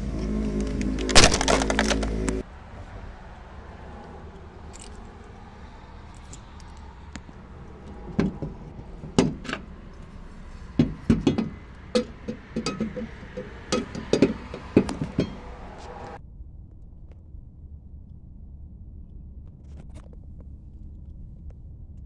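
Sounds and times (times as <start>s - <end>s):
metal wheel clamp clanking: 6.1s - 16.2s.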